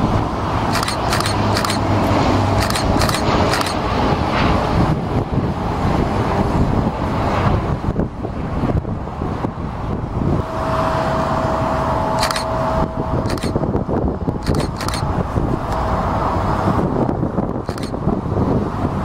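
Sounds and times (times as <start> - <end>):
distant aircraft engine: 0.0 - 19.0
wind on microphone: 0.0 - 19.0
sharp clicks: 0.7 - 1.9, 2.6 - 3.8, 12.2 - 12.5, 13.2 - 13.6, 14.4 - 15.1, 17.7 - 18.0.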